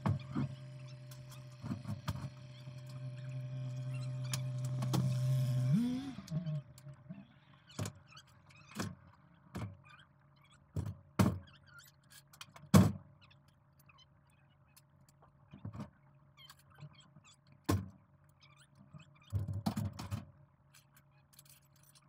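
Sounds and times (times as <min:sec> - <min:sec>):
steady mechanical hum: 0:00.0 - 0:16.7.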